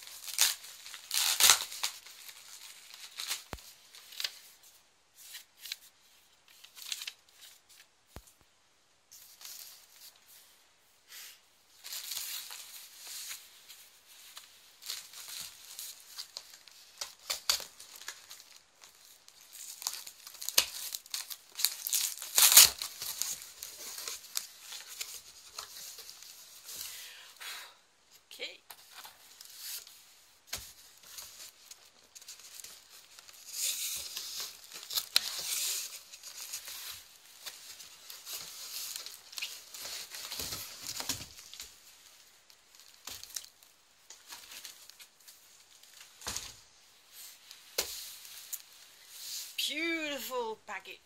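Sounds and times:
packing tape ripping: 0.0s - 3.6s, 14.8s - 26.0s, 30.6s - 41.6s
cardboard crinkling: 0.0s - 8.4s, 11.7s - 27.0s, 28.8s - 49.7s.

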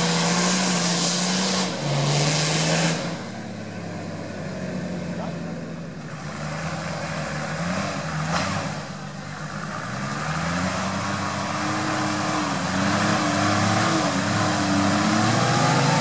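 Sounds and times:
engine pulling at low revs: 0.0s - 16.0s.

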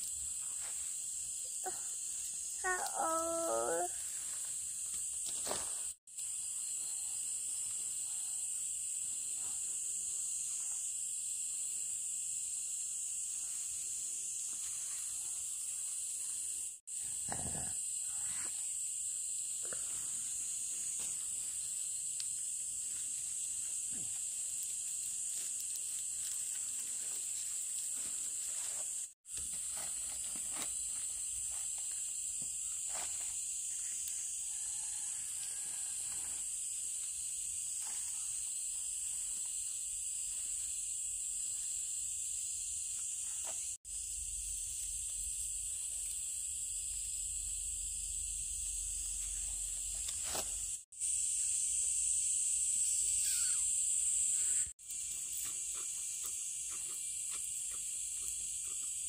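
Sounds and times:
insect chorus drone: 0.0s - 59.0s.

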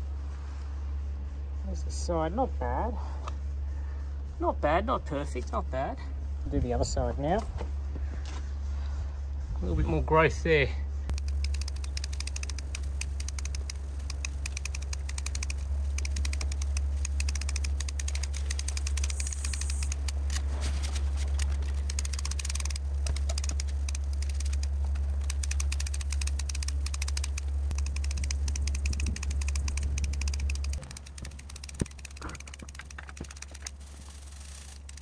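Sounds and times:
steady low rumble: 0.0s - 35.0s.

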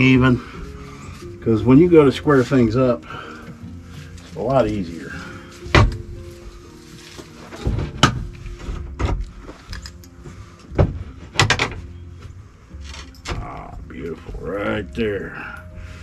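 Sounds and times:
background music: 0.0s - 16.0s
wooden frame knocks and thumps: 5.7s - 6.2s, 7.5s - 9.4s, 10.7s - 11.9s.

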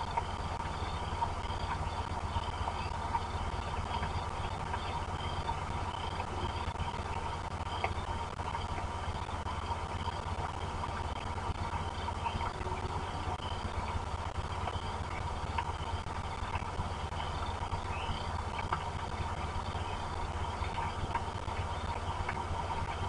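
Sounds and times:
steady rain on microphone: 0.0s - 23.0s
faint high chirp: 15.6s - 18.4s.

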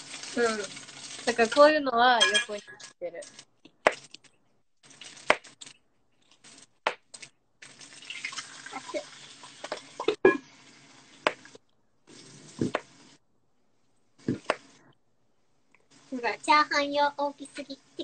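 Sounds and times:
pot and lid clinking: 2.2s - 2.8s
steady rushing hiss: 15.9s - 18.0s.

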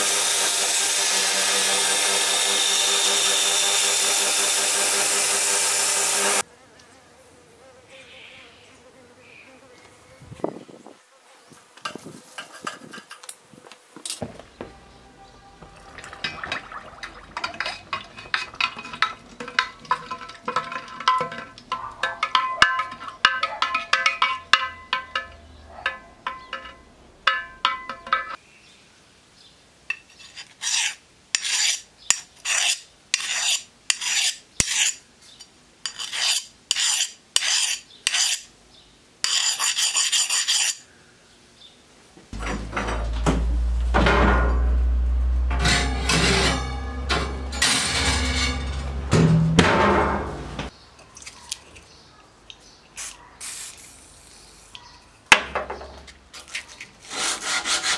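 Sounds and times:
knife blade scraping strokes: 29.9s - 38.5s, 39.2s - 40.9s, 45.6s - 49.0s
low rumble: 42.4s - 50.7s.

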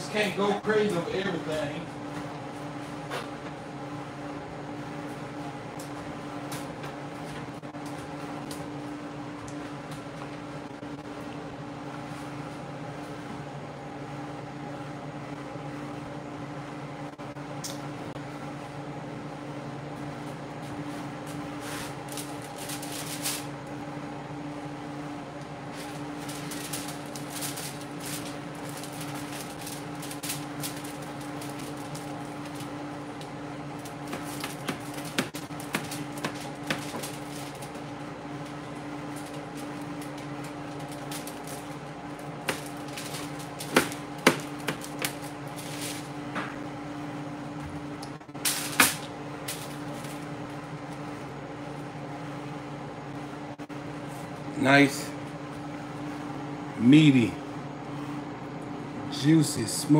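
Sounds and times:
steady hum with tones: 0.0s - 59.9s
blade knocking on foil and tray: 33.8s - 37.8s, 42.4s - 46.1s.

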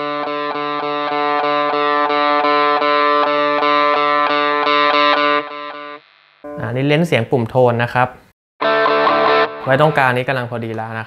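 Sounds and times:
overdriven electric guitar picking: 0.0s - 6.6s, 8.6s - 10.2s.

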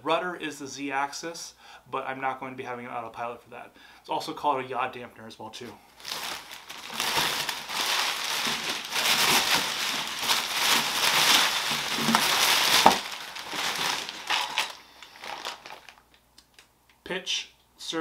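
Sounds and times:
packing paper crinkling: 6.0s - 16.7s.

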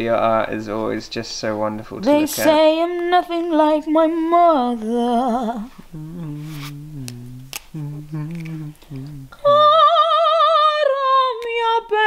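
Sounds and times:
woman singing with vibrato: 2.0s - 12.0s
lower voice humming: 5.2s - 9.6s.

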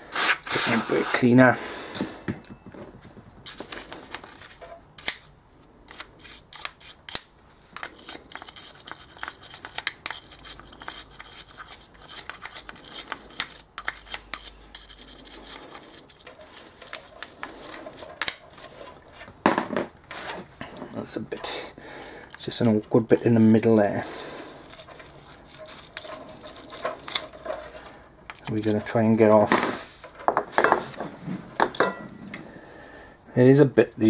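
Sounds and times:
wire brush scrubbing metal: 21.4s - 29.4s.

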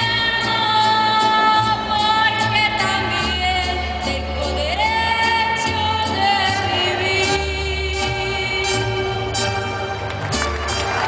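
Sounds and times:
woman singing: 0.0s - 9.4s
mariachi band playing: 0.0s - 11.0s.

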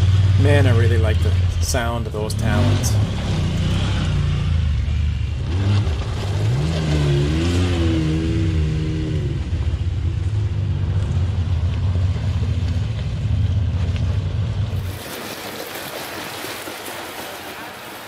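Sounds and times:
utility vehicle engine revving: 0.0s - 15.0s
wind: 0.0s - 18.0s
river water rushing: 14.8s - 18.0s.

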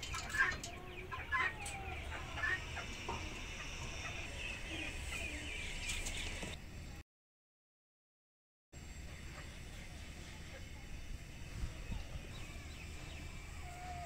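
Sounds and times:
chickens clucking and chirping: 0.0s - 6.6s.

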